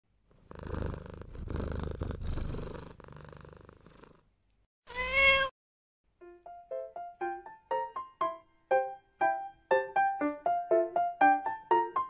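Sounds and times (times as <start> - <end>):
kitten purring: 0.2 - 4.3.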